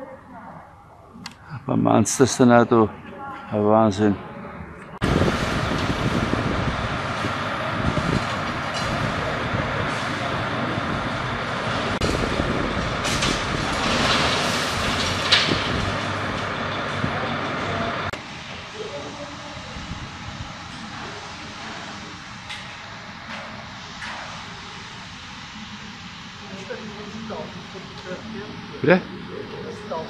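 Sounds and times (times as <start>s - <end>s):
heavy truck engine rumbling: 4.2s - 23.2s.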